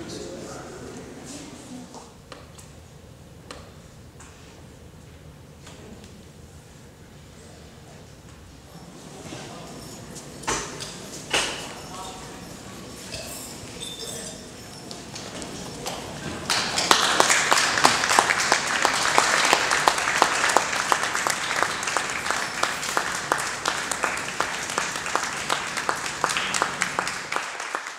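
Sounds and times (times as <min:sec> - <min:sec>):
audience applause: 0:15.2 - 0:27.9.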